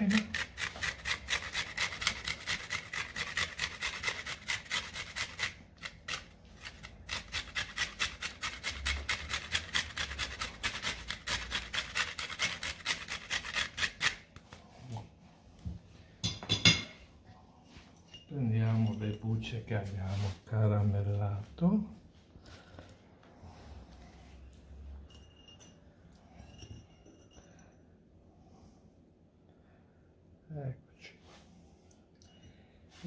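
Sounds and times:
peel rasping on fine grater: 0:00.0 - 0:14.2.

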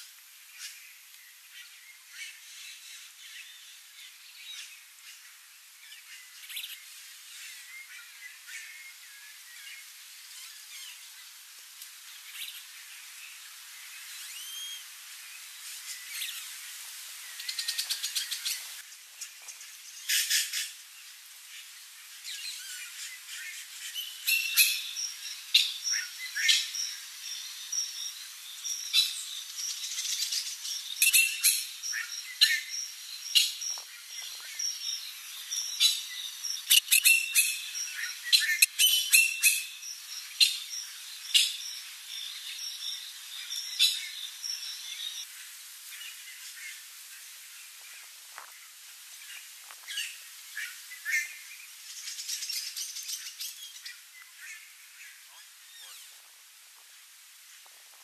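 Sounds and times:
birds chirping: 0:22.2 - 0:45.3.

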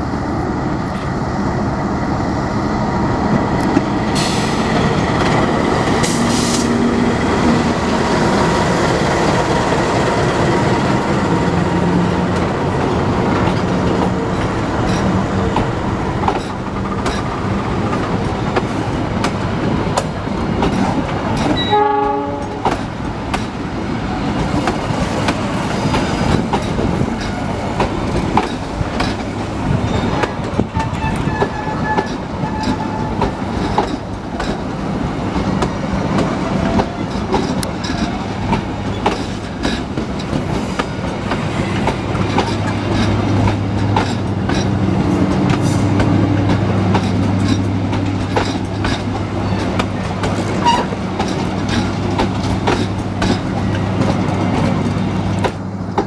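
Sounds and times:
train rumble: 0:00.0 - 0:56.0
train wheels clicking over rail joints: 0:03.2 - 0:56.0.

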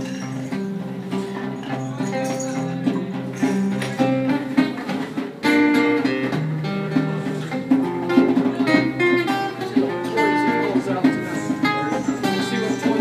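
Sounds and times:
acoustic guitar strummed and picked: 0:00.0 - 0:13.0.

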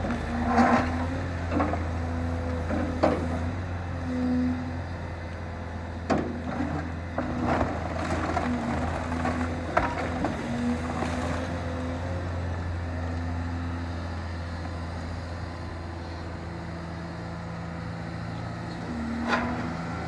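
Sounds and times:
excavator diesel engine running: 0:00.0 - 0:20.0.

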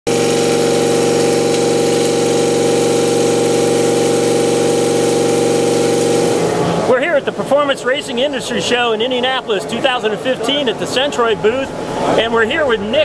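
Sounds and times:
coolant hiss: 0:00.1 - 0:06.6
milling cutter whine: 0:00.1 - 0:06.9.

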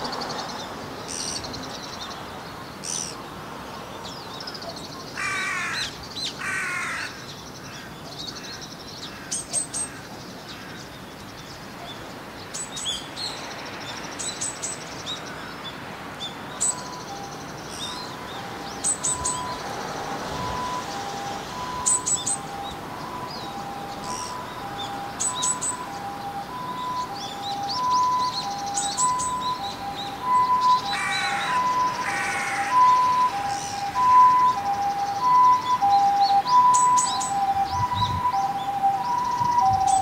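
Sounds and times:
small birds chirping: 0:00.0 - 0:40.0
crow cawing: 0:05.2 - 0:11.0, 0:15.2 - 0:15.6, 0:30.8 - 0:33.9.

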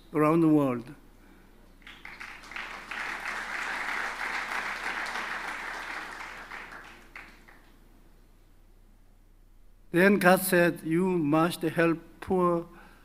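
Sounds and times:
audience applauding: 0:01.8 - 0:07.8.

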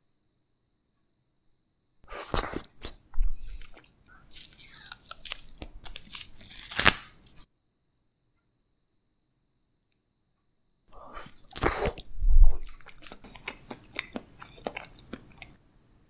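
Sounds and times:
plastic crackling and snapping: 0:04.3 - 0:07.4
plastic film lid peeling: 0:04.3 - 0:07.4.

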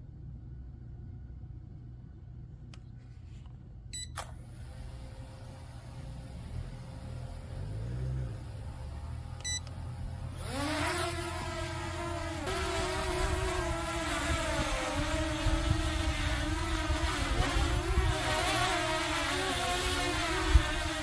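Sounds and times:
electronic beeps: 0:04.0 - 0:13.6
motor start click: 0:04.0 - 0:21.0
drone motors whining: 0:04.2 - 0:21.0.

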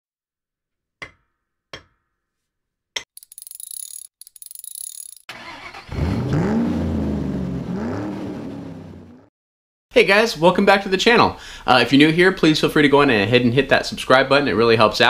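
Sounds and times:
car engine starting and revving: 0:05.3 - 0:09.3.

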